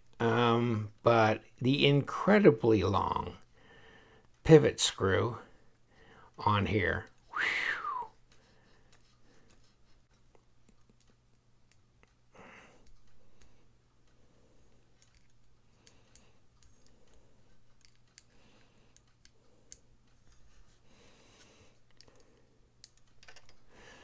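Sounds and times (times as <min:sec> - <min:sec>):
small metal parts clicking: 0:14.9 - 0:20.5, 0:21.9 - 0:23.7.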